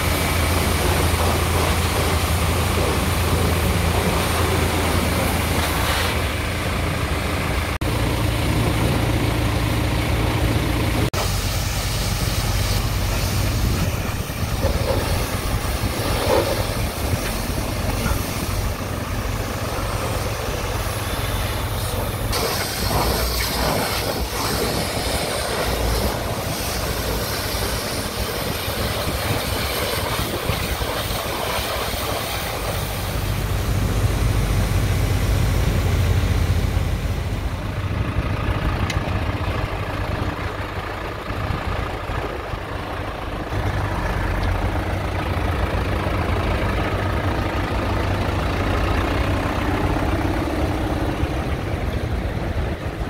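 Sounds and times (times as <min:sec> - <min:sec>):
pressure washer hissing: 0:00.0 - 0:06.7, 0:11.1 - 0:36.9.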